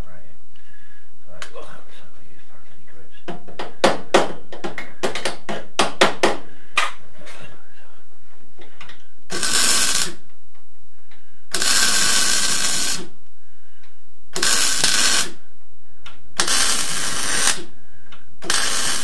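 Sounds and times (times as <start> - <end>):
welding arc bursts: 9.3 - 10.2, 11.5 - 13.1, 14.3 - 15.4, 16.4 - 17.7, 18.4 - 19.0.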